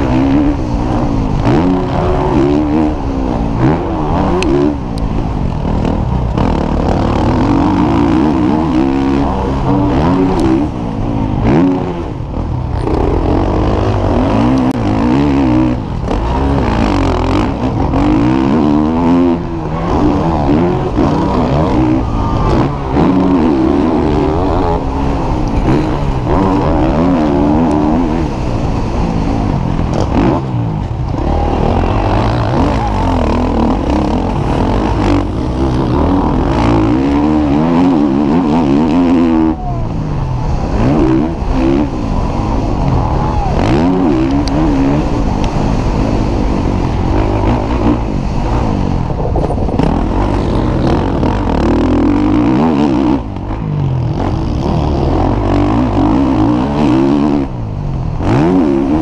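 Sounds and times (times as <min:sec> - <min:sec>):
motocross bike engine revving: 0:00.0 - 0:59.0.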